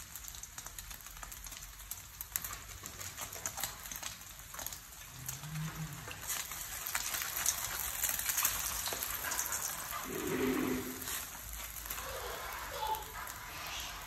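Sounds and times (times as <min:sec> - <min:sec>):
eggs sizzling in a frying pan: 0:00.0 - 0:14.0
wooden spatula scraping: 0:05.2 - 0:14.0.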